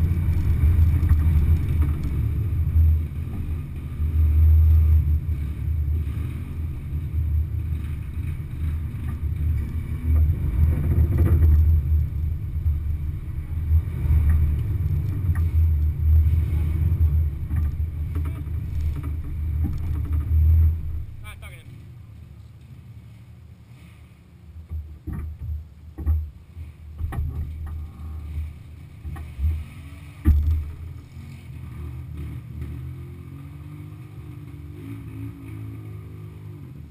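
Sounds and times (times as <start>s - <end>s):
vehicle engine low rumble: 0.0s - 36.9s.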